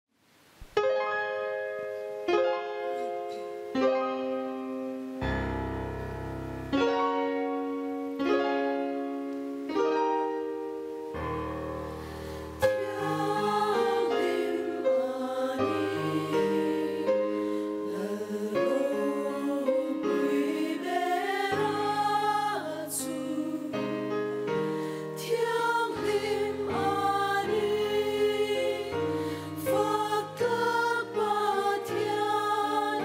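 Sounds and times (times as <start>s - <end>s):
slow piano chords: 0.7s - 33.0s
mixed choir singing: 12.6s - 33.0s.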